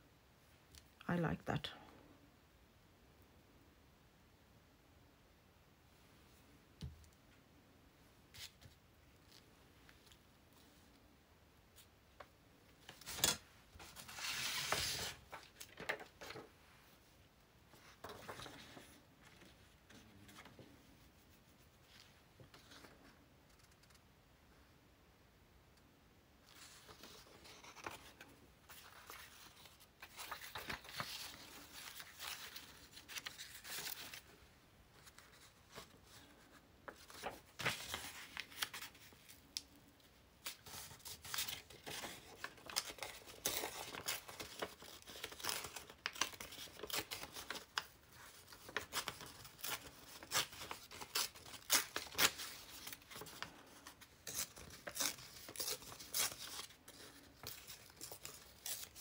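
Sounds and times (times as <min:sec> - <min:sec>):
paper rustling and sliding: 0:12.8 - 0:16.5, 0:26.5 - 0:34.3.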